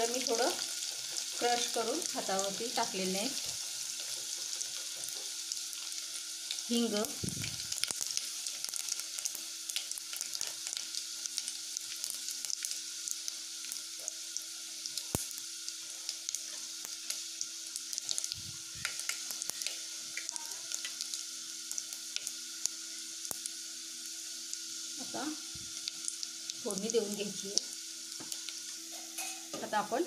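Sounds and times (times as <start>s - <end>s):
spices sizzling in hot oil: 0.0s - 30.0s
small pops and crackles: 7.1s - 9.1s, 15.0s - 15.4s, 18.0s - 21.2s.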